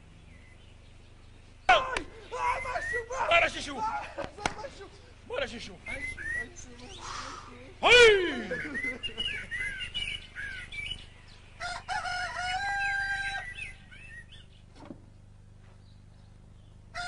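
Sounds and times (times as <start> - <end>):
chirping bird calls: 0.0 - 3.9, 5.0 - 14.8
rooster crowing: 11.6 - 14.1.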